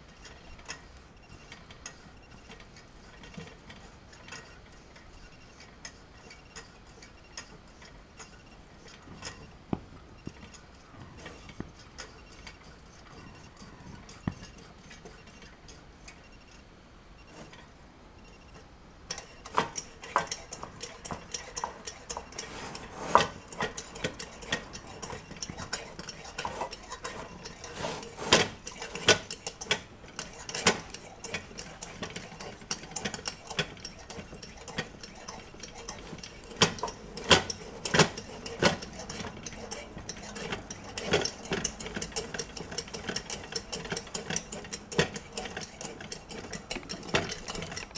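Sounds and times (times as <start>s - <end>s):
lantern pump metallic clicks: 19.1s - 47.9s.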